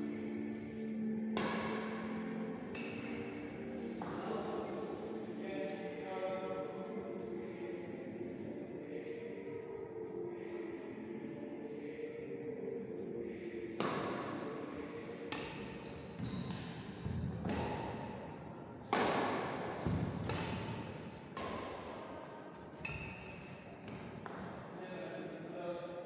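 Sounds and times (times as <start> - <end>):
rackets striking shuttlecock: 1.3 - 4.2, 15.2 - 18.2, 18.8 - 22.0
sneaker squeaks on wooden court: 15.8 - 17.1, 22.5 - 23.5.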